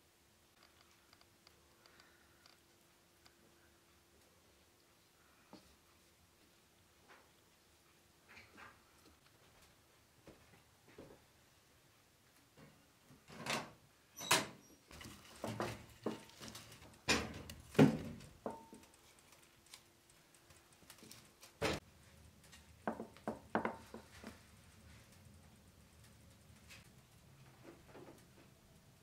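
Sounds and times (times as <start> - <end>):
logs thudding into firebox: 15.0 - 18.7.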